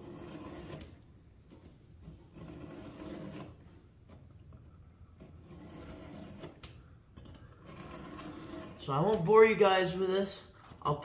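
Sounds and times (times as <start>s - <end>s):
file rasping on chainsaw chain: 5.2s - 6.8s, 7.6s - 9.3s.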